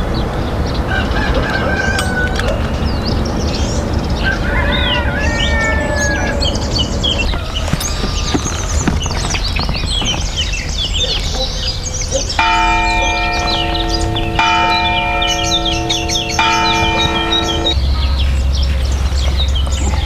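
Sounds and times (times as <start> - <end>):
small birds chirping: 0.0 - 20.0
bell tolling: 12.4 - 18.1.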